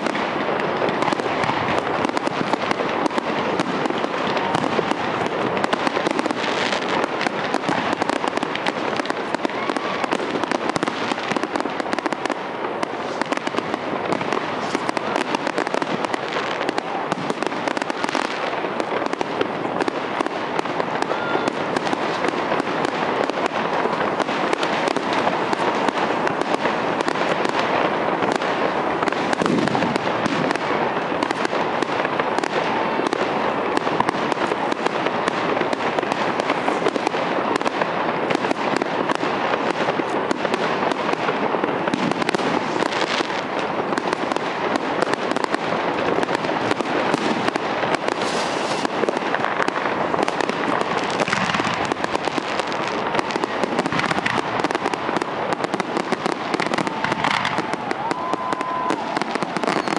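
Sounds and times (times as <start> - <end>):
fireworks crackling and popping: 0.0 - 59.9.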